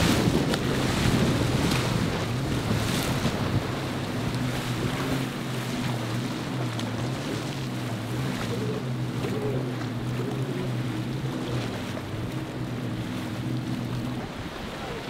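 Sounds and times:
wind noise on microphone: 0.0 - 5.1
churned water rushing: 0.0 - 15.0
jet ski engine droning: 0.0 - 15.0.

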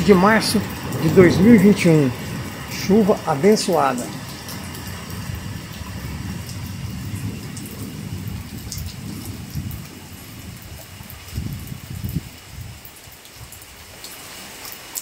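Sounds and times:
low rumble: 0.0 - 12.3
steady rain falling: 0.0 - 15.0.

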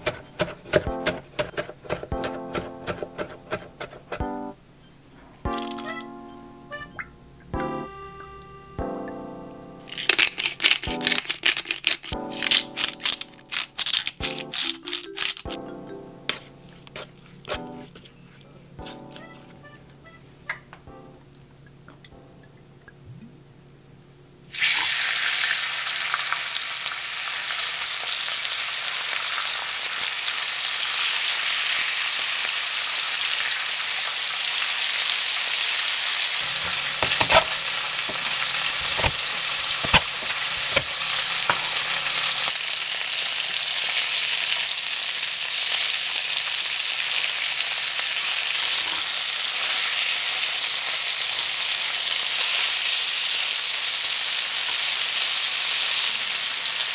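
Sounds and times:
meat sizzling in a frying pan: 24.5 - 56.9.

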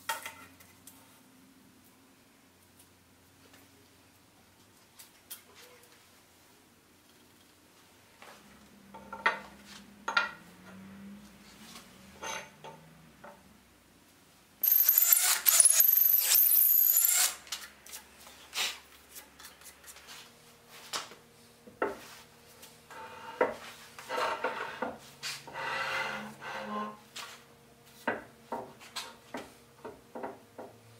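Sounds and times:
cordless drill boring into wood: 14.6 - 17.4.

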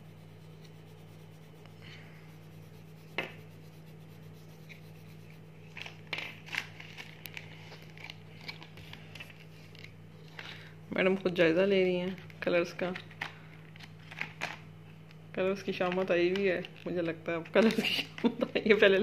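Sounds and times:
pencil scratching on paper: 0.0 - 5.5
steady low hum: 0.0 - 19.0
pencils clicking on table: 15.7 - 18.2.

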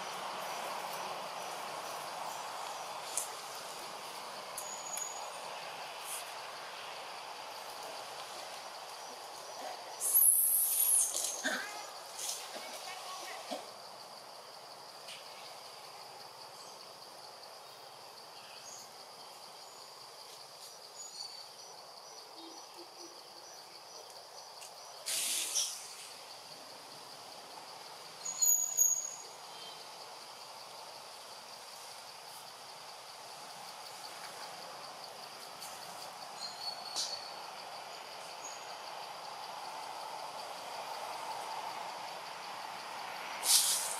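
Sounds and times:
high-pitched insect drone: 27.8 - 29.9
loud high chirp: 28.2 - 29.2
short burst of noise: 43.4 - 43.9.

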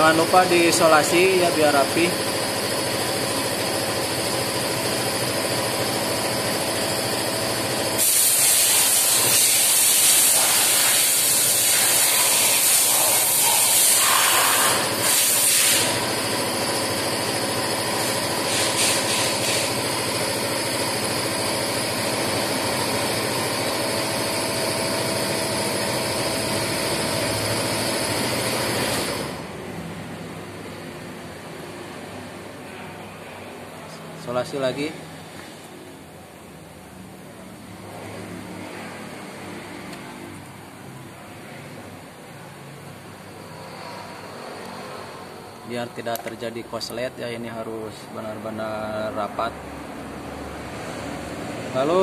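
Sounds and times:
workshop hum: 0.0 - 52.0.

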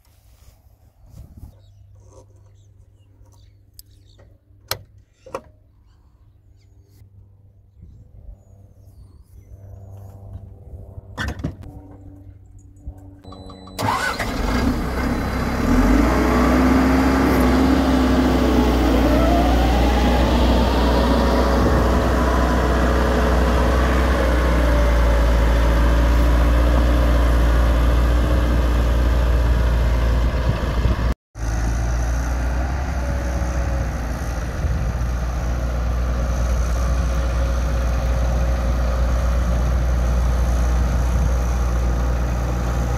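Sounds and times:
engine whine: 6.8 - 42.9
diesel engine starting and running: 13.2 - 42.9.

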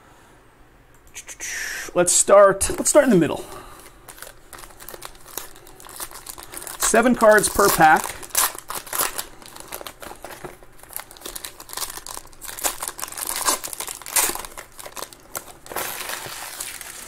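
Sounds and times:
foil pack tearing and crinkling: 3.8 - 17.0.

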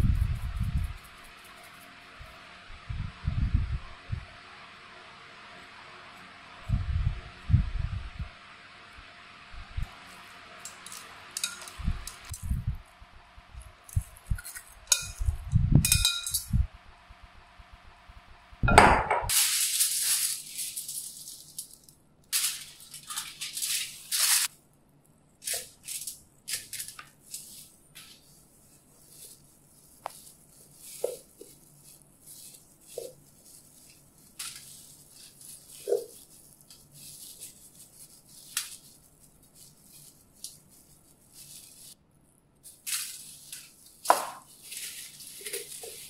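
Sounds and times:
aluminium foil crinkling: 0.0 - 2.4, 9.8 - 12.6, 13.5 - 15.4, 19.3 - 46.0
metal tongs clinking on glass bowl: 10.7 - 12.4, 14.4 - 16.6.

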